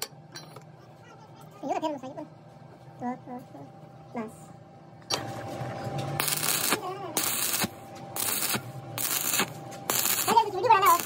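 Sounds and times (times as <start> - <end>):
welding arc crackling: 6.2 - 11.0.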